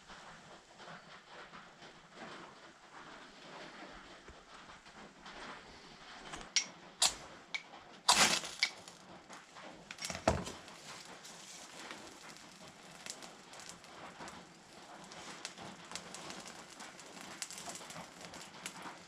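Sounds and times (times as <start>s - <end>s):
fire steel rasping: 5.7s - 19.0s.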